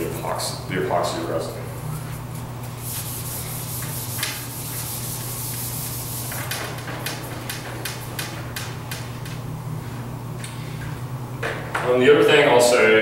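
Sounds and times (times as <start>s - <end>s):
eraser rubbing on whiteboard: 2.8s - 7.6s.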